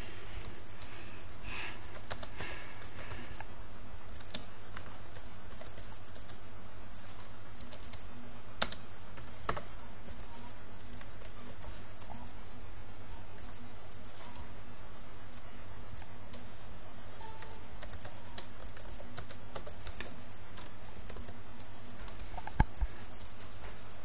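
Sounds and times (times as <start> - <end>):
steady low hum: 0.0 - 24.0
keyboard typing clicks: 1.9 - 3.5, 4.1 - 6.4, 7.1 - 12.2, 17.2 - 23.4.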